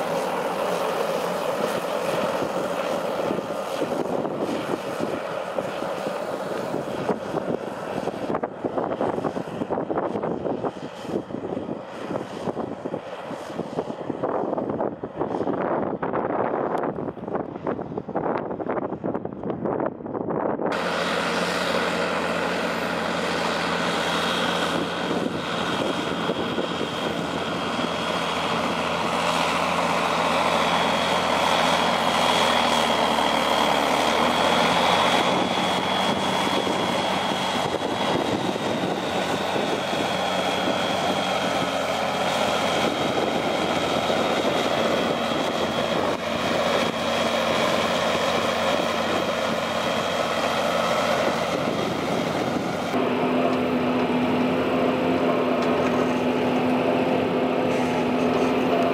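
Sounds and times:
tractor diesel engine running: 0.0 - 14.8, 20.7 - 58.9
high whine: 20.7 - 58.9.

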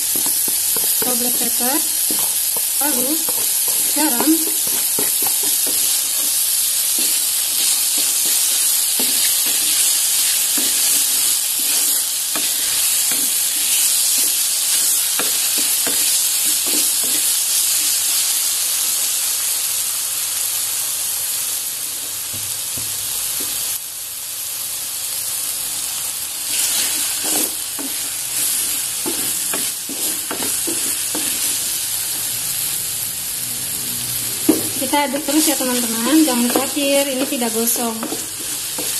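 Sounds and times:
wooden spatula scraping a pot: 0.0 - 17.9, 26.5 - 32.4, 34.5 - 38.9
mushrooms sizzling in a pot: 0.0 - 38.9.

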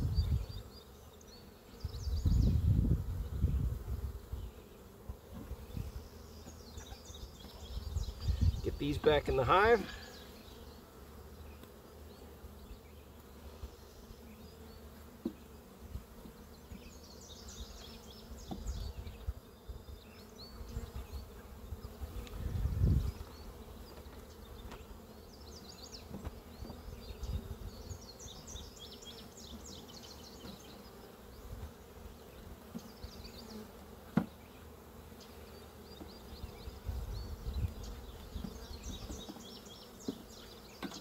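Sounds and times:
honeybees buzzing: 0.0 - 41.0.

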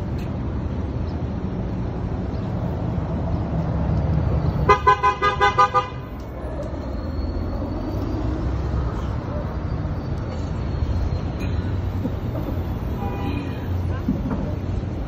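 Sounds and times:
street traffic rumble: 0.0 - 15.0
car horn toots: 4.7 - 6.0.

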